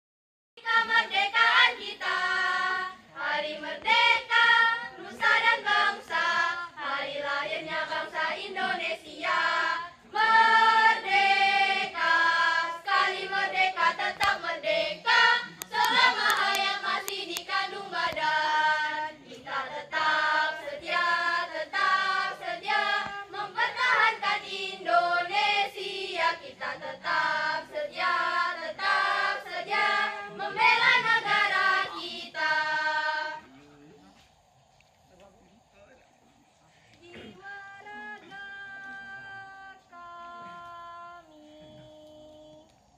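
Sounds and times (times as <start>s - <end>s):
school choir singing: 0.6s - 33.6s.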